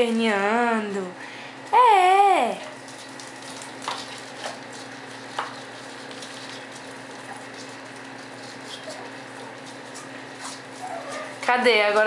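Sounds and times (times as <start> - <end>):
puppy paws pattering on newspaper: 1.7 - 12.0.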